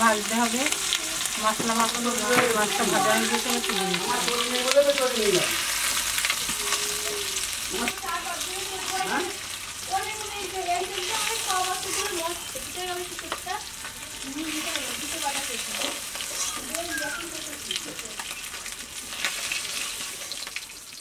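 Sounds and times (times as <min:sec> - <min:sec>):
fish sizzling in oil: 0:00.0 - 0:21.0.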